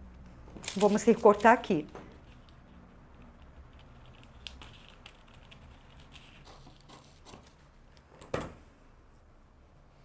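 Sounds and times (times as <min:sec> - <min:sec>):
paper rustling: 0:00.6 - 0:07.8.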